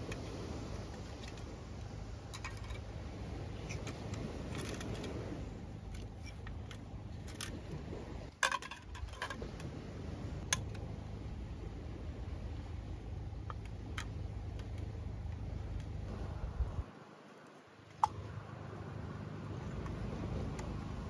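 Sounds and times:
low rushing noise: 14.2s - 17.3s.

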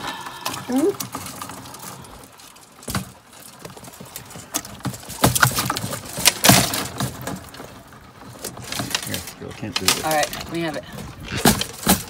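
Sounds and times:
wire-mesh trap rattling: 0.4s - 12.0s.

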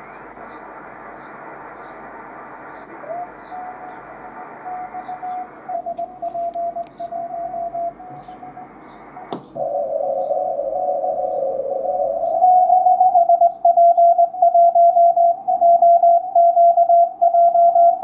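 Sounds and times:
radio band hiss: 0.0s - 13.0s
morse code tone: 3.0s - 9.3s, 10.8s - 18.0s.

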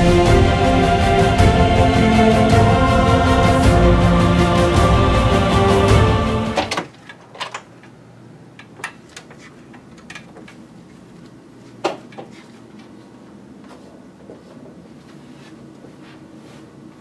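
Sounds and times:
background music: 0.0s - 6.8s.

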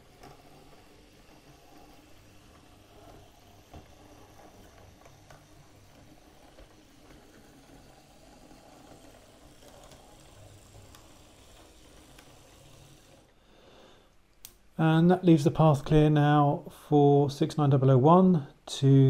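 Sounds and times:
model train motor whirring: 0.0s - 13.3s.

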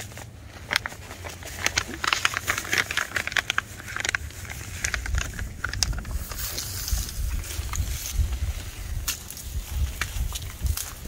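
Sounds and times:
soil rustling and crackling: 0.0s - 11.0s
low rumble: 0.3s - 11.0s.

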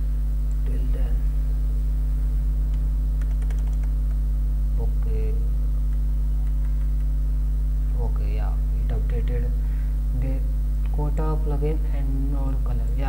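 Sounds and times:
electrical mains hum: 0.0s - 13.0s
computer keyboard typing: 2.7s - 4.2s, 6.4s - 7.1s.

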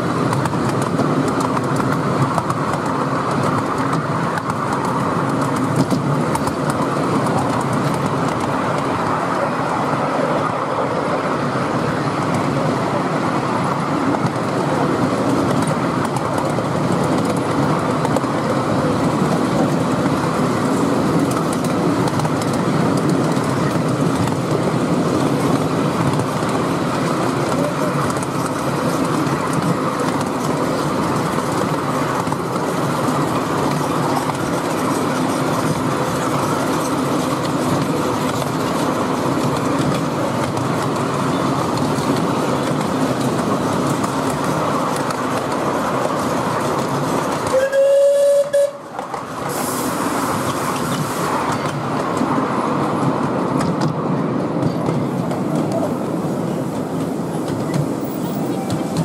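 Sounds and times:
wheels rolling over track: 0.0s - 59.0s
steam locomotive whistle: 47.4s - 48.9s.

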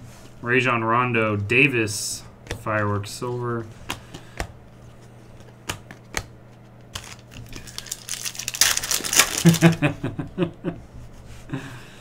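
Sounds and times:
foil wrapper crinkling and tearing: 6.9s - 9.9s.

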